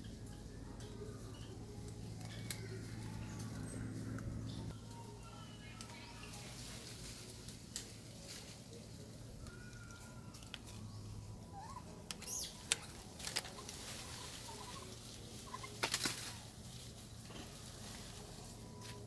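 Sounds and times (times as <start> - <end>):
leaves rustling: 0.8 - 19.0
twigs snapping: 2.2 - 2.7, 7.5 - 8.0, 12.1 - 14.0, 15.6 - 16.4
faint high chirping calls: 9.4 - 12.9.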